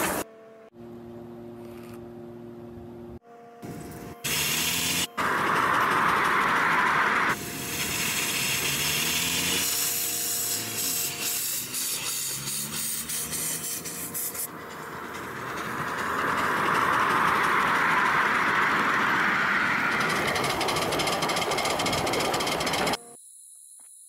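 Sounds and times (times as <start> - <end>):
brief rising whines: 3.6 - 10.0, 11.6 - 23.0
model train motor whirring: 3.6 - 23.0.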